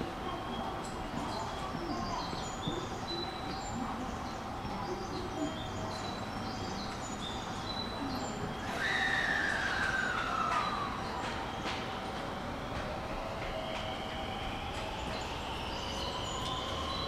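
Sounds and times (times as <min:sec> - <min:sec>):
electric train motor whine: 0:08.4 - 0:17.0.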